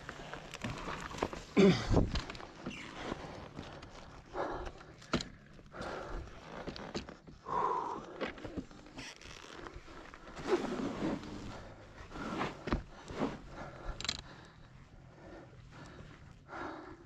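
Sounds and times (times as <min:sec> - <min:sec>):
heavy breathing: 0:03.0 - 0:06.8, 0:07.4 - 0:08.7, 0:11.1 - 0:17.0.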